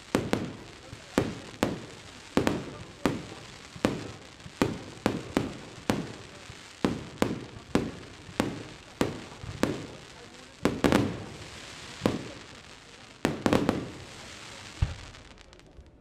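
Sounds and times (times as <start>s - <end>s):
fireworks bangs with echo: 0.0s - 16.0s.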